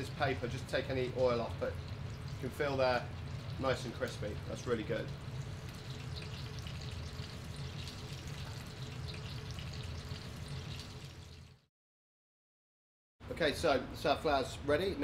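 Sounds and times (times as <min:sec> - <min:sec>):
oil sizzling and crackling: 0:00.0 - 0:11.7.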